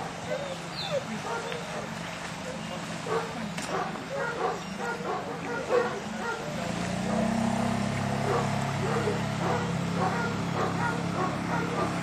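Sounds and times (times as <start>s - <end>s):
boat engine hum: 0.0s - 12.0s
dog barking: 1.2s - 1.9s, 3.1s - 7.3s, 8.2s - 12.0s.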